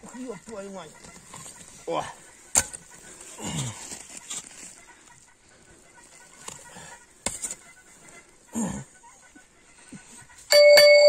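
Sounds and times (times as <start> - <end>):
spade scraping frozen ground: 7.2 - 7.6.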